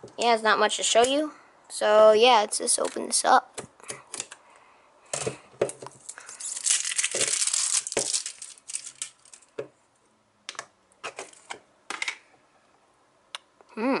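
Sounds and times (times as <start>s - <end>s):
plastic wrap crinkling and tearing: 5.9s - 9.5s.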